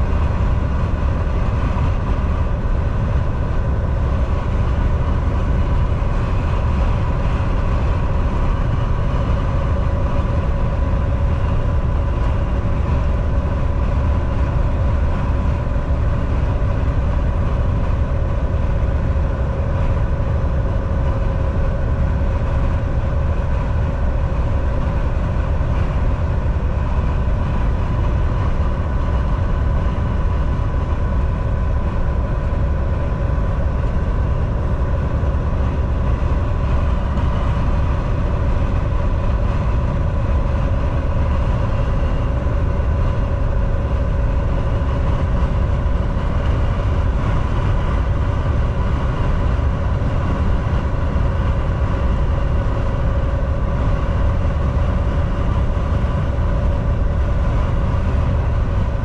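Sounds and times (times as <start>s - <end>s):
thin steady whine: 0.0s - 59.0s
truck engine and road drone: 0.0s - 59.0s.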